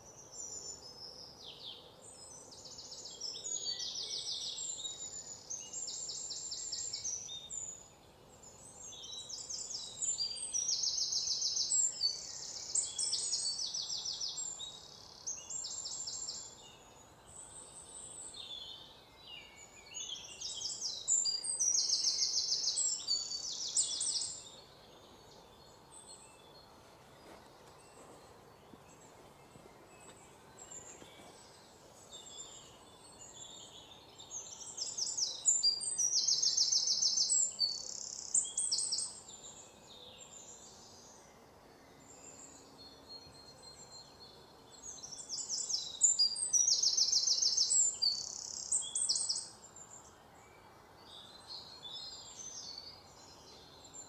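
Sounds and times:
bird song: 0.0s - 54.0s.

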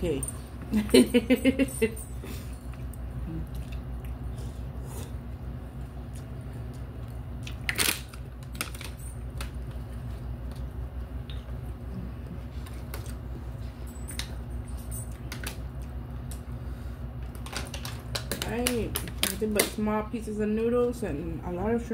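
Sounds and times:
steady low hum: 0.0s - 21.9s
chewing: 2.6s - 7.6s.

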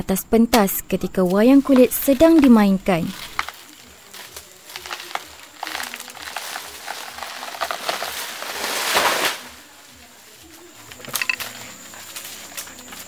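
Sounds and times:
banana plant falling and crashing: 1.7s - 10.2s.

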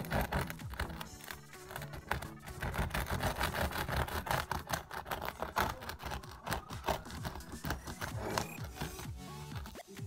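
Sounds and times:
knife sawing through bread crust: 0.0s - 9.8s.

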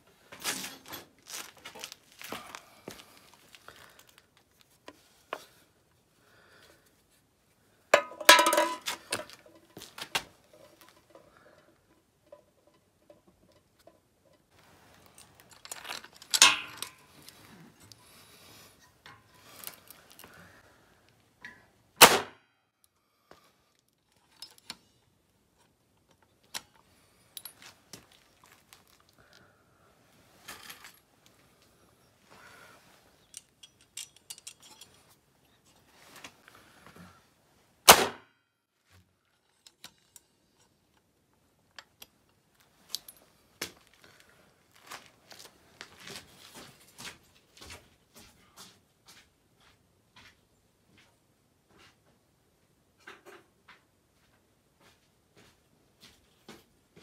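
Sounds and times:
metal clanks: 8.0s - 9.9s, 15.6s - 17.4s
metal clicks and clinks: 8.0s - 18.0s, 33.2s - 35.2s.

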